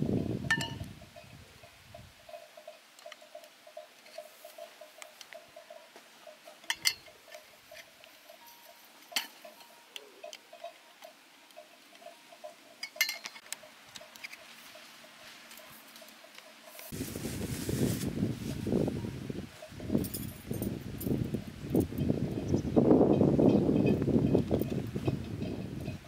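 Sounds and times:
metal poles clinking: 0:00.4 - 0:01.3, 0:02.3 - 0:17.0, 0:19.6 - 0:21.2.

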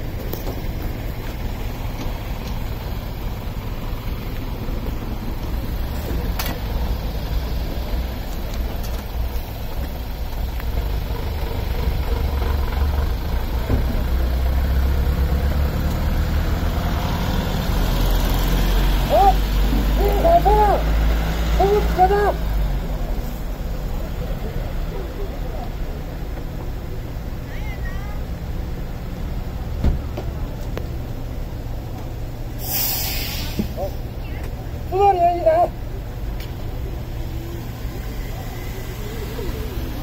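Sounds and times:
large vehicle engine idling: 0:00.0 - 0:40.0
person speaking: 0:19.1 - 0:20.9, 0:21.5 - 0:22.5.

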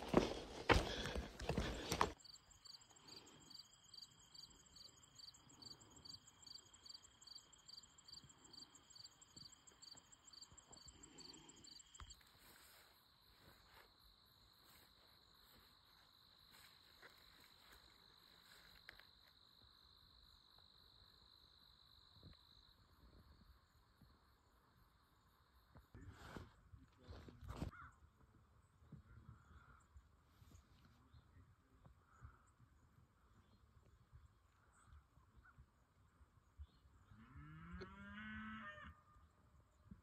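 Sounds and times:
insect chirp pulsing: 0:01.7 - 0:26.0.

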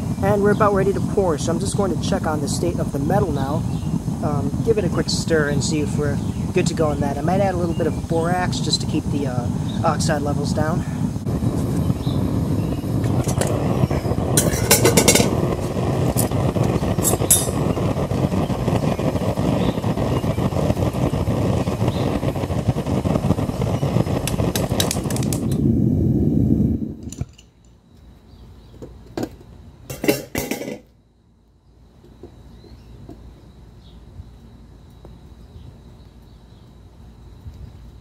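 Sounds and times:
furnace burner rushing: 0:00.0 - 0:27.4, 0:29.8 - 0:30.9.

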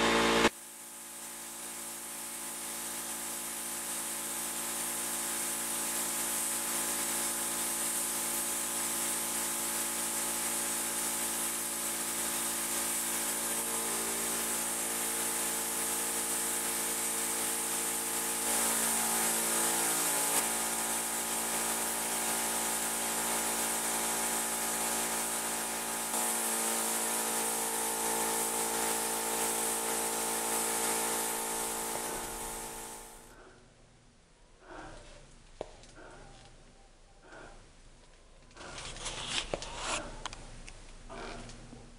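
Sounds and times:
paint spray gun hissing: 0:00.0 - 0:33.3
steady multi-tone hum: 0:00.0 - 0:38.0.

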